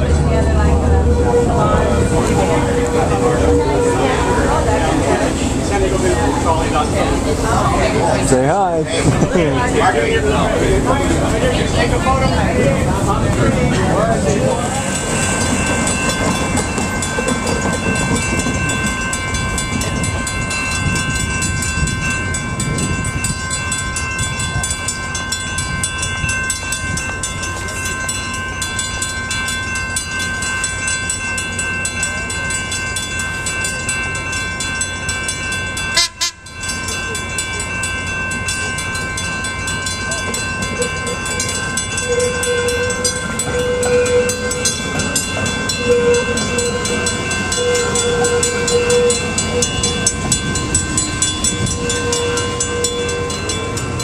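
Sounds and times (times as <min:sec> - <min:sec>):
crossing warning bells ringing: 0:00.0 - 0:54.0
streetcar hum: 0:00.0 - 0:54.0.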